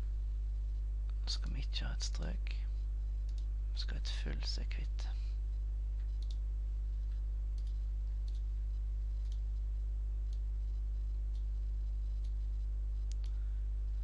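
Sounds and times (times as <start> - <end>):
low electrical hum: 0.0 - 14.0
computer mouse clicks: 3.2 - 3.5, 6.0 - 6.4, 7.0 - 8.5, 9.2 - 9.4, 13.0 - 13.4.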